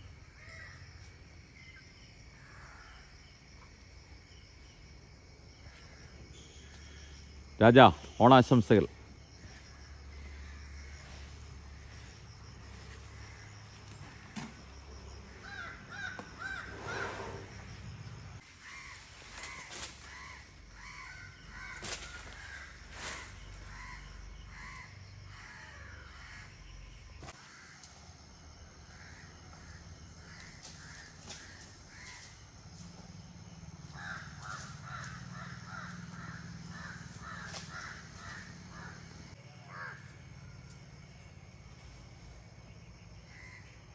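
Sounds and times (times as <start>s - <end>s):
birds calling: 5.6s - 27.7s, 33.9s - 40.0s.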